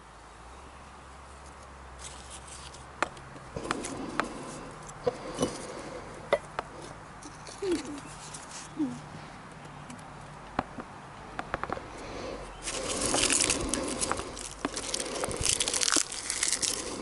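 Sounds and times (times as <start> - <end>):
hands rustling tinder: 12.6 - 17.0.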